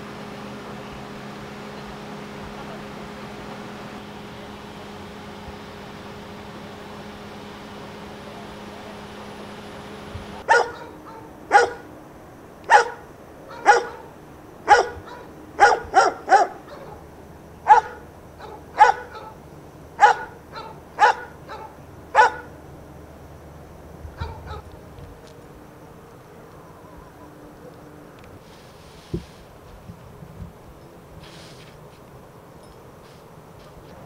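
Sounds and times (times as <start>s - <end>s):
dog barking: 10.4s - 11.9s, 12.7s - 19.4s, 20.0s - 22.5s, 24.2s - 24.7s.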